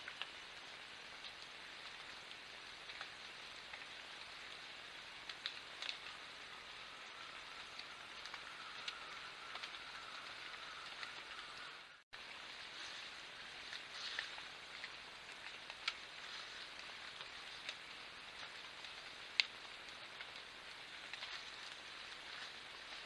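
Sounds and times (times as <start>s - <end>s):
light ticks: 0.0s - 0.4s, 1.1s - 4.4s, 5.2s - 6.3s, 7.2s - 11.7s, 13.6s - 23.0s
rainforest hiss: 0.0s - 23.0s.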